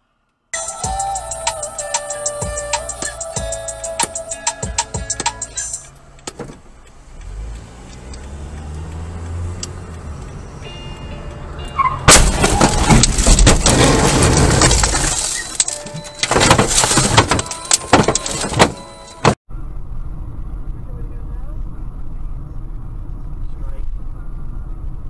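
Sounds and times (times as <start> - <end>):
car engine pulling away: 5.3 - 15.6
loud car crash: 11.8 - 19.4
metal crunching and scraping: 12.0 - 19.4.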